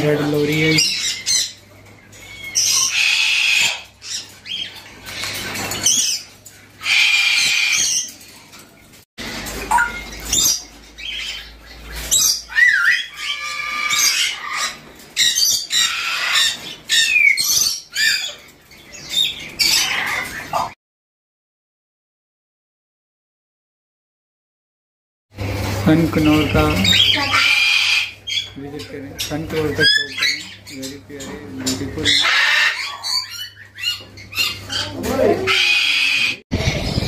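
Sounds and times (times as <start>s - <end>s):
parrots squawking: 0.0s - 20.8s, 25.5s - 37.0s.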